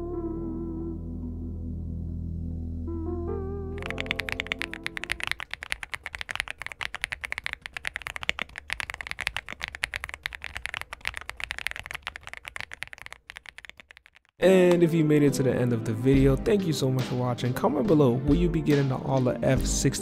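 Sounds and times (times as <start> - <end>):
mechanical keyboard typing: 3.8 - 14.4.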